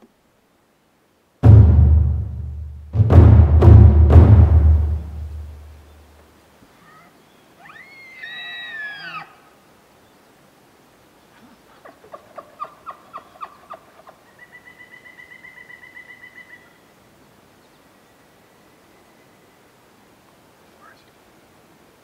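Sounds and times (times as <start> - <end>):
elk chuckles: 11.3 - 14.3.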